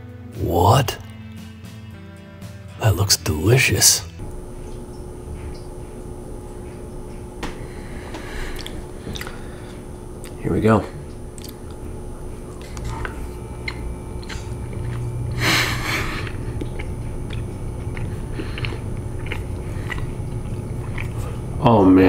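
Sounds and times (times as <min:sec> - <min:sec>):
person chewing bread: 0:04.6 - 0:10.4, 0:11.0 - 0:21.6
breathy blow through lips: 0:07.5 - 0:09.9
crunchy crust clicks: 0:11.0 - 0:21.6.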